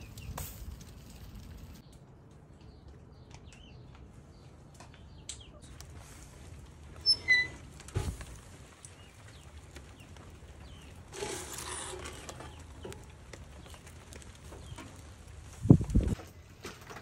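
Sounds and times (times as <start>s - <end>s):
metal baking tray scraping: 11.1s - 12.9s.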